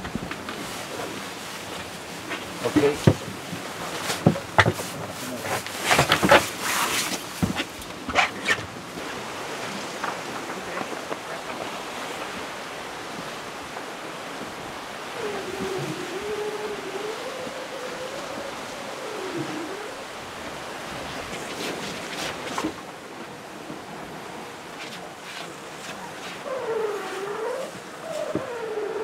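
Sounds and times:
wind and sea rushing: 0.0s - 29.0s
low wavering moan: 15.1s - 20.1s.

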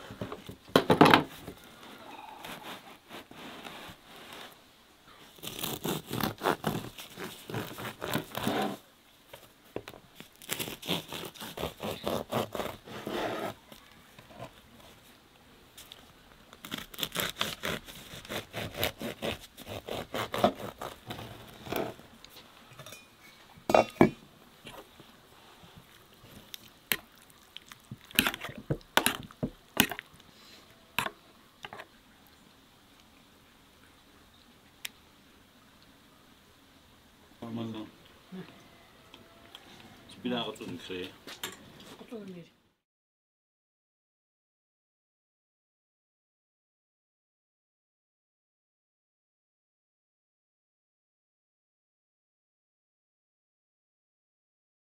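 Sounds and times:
bread knife sawing crusty loaf: 5.3s - 8.8s, 10.4s - 13.6s, 16.7s - 22.0s
wet squishing: 25.8s - 30.3s.

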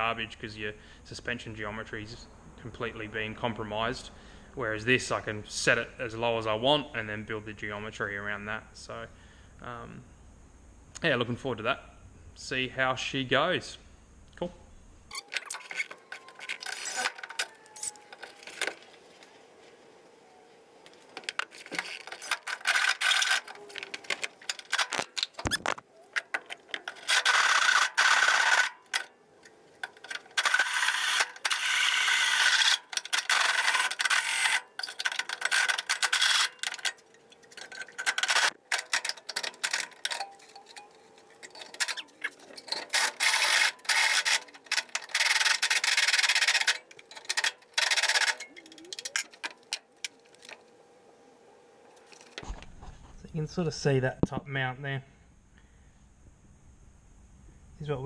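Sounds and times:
handling sounds: 15.1s - 31.8s, 32.4s - 50.8s.

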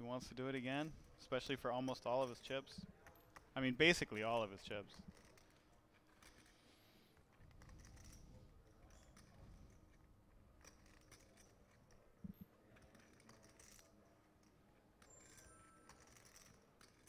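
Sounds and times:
poker chips clicking: 5.0s - 17.0s.

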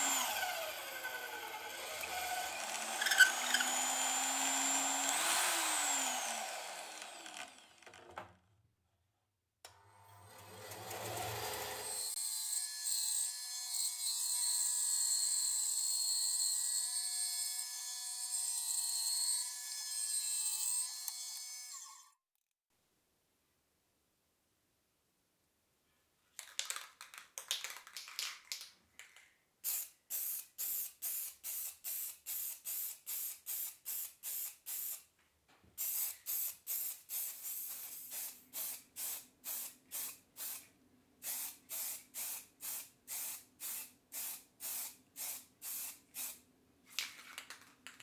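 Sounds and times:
aerosol spray paint bursts: 29.6s - 35.0s, 35.8s - 40.6s, 41.2s - 46.4s.

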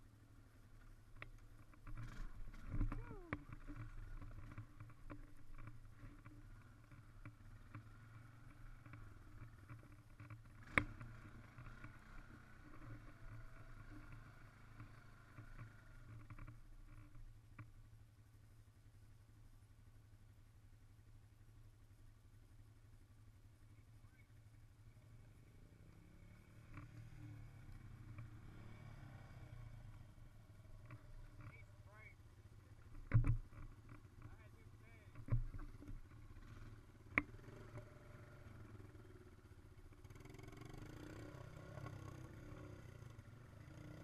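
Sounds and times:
atv engine running: 0.0s - 44.0s.

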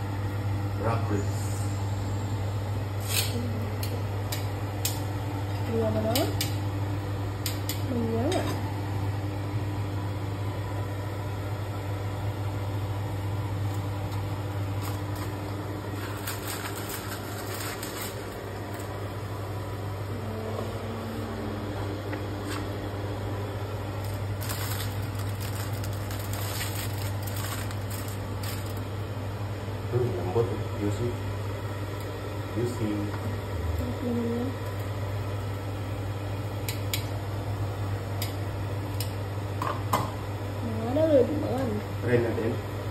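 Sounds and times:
steady low hum: 0.0s - 42.9s
metal tongs scraping on foil: 24.5s - 27.9s.

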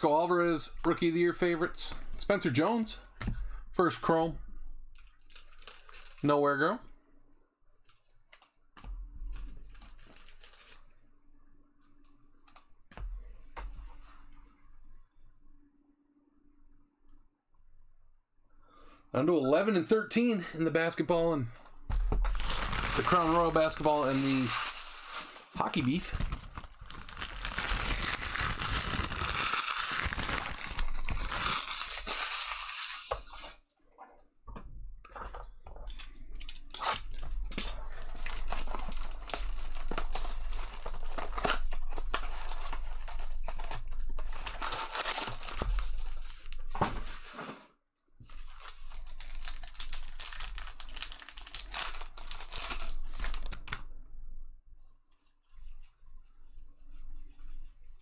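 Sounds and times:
foil wrappers tearing and crinkling: 5.2s - 6.2s, 9.8s - 11.0s, 22.2s - 33.6s, 36.7s - 47.4s, 48.3s - 53.8s.

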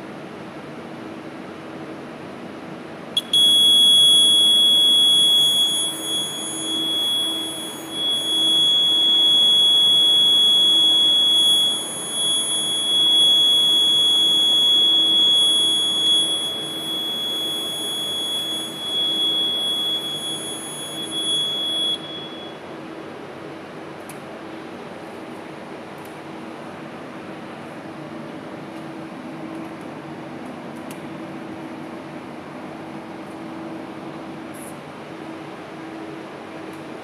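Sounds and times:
high-pitched alarm buzzer tone: 3.2s - 22.6s.

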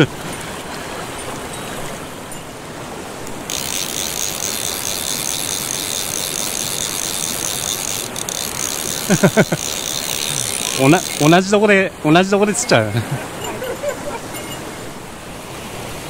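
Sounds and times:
mountain stream rushing: 0.0s - 16.0s
fishing reel ratchet buzzing: 3.4s - 11.6s.

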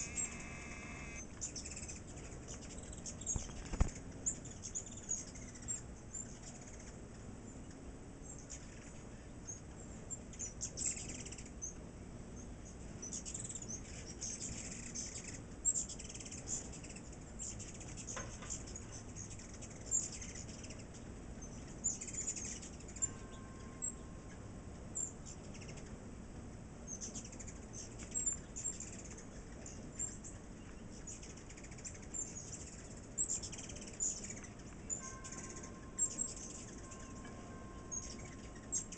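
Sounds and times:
hummingbird wings whirring: 0.0s - 1.2s
hummingbirds squeaky chips: 0.0s - 6.9s, 26.9s - 38.9s.

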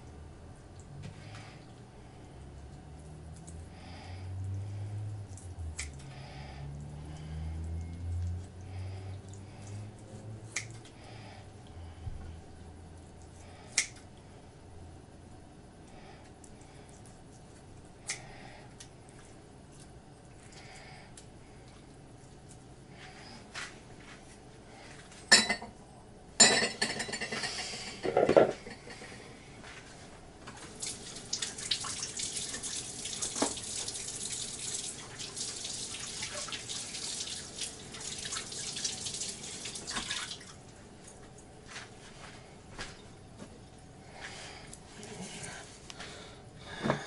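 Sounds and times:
tap water running: 30.6s - 40.7s.

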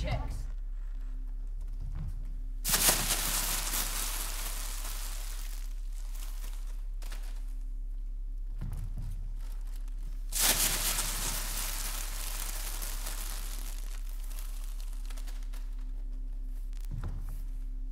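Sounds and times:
low electrical hum: 0.0s - 17.9s
rustling hissing noise bursts: 2.6s - 6.7s, 10.3s - 15.7s.

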